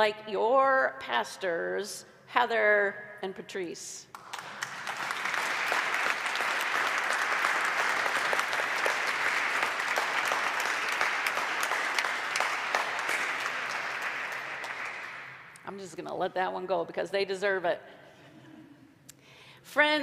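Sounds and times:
congregation applauding: 4.1s - 15.6s.

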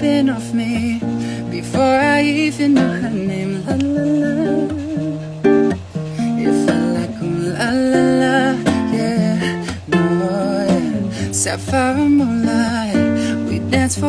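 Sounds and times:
acoustic guitar chords: 0.0s - 14.0s
man and woman singing: 0.0s - 14.0s.

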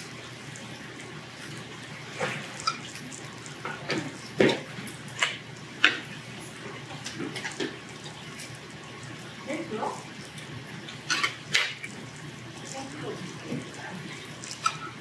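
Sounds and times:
man chewing food noisily: 0.0s - 9.4s.

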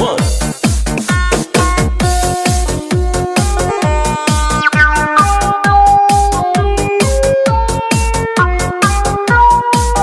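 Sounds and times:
kick drum: 0.2s - 10.0s
held synthesizer notes: 3.3s - 7.1s.

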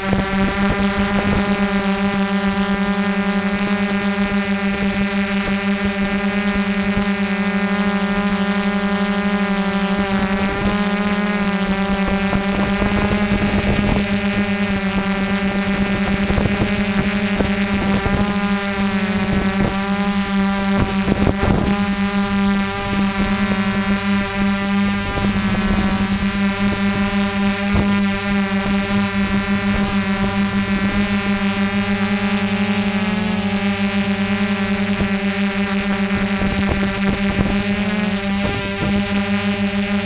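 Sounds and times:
drone propellers buzzing: 0.0s - 40.0s.

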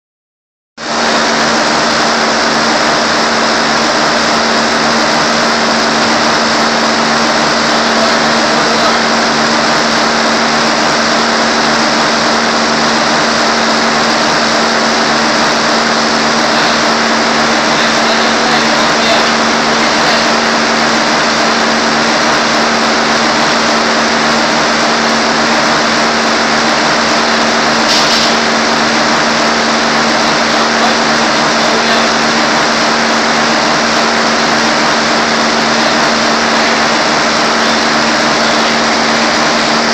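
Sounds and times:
treadmill motor hum: 0.8s - 39.9s.

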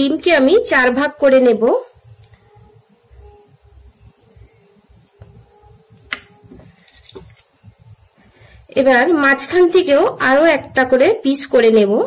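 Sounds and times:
cricket chirping: 0.0s - 12.0s
soft knife handling sounds: 6.5s - 7.5s.

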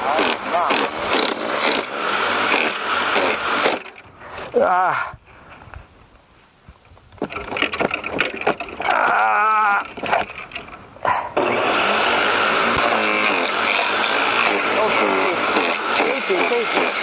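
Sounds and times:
wood shredder grinding branch: 0.0s - 4.6s, 7.2s - 17.0s
wood cracking and knocking: 7.2s - 9.2s.

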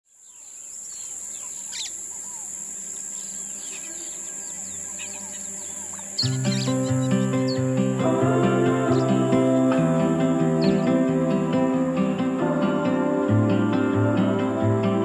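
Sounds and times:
birds chirping and whistling: 0.2s - 8.0s, 8.7s - 9.2s, 10.4s - 12.3s
high-pitched insect drone: 0.2s - 15.0s
music: 6.0s - 15.0s.

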